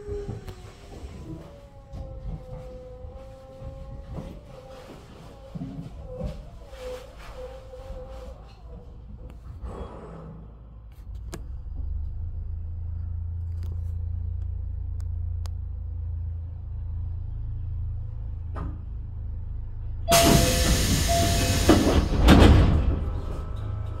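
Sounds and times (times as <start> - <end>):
electric train humming: 19.2 - 24.0.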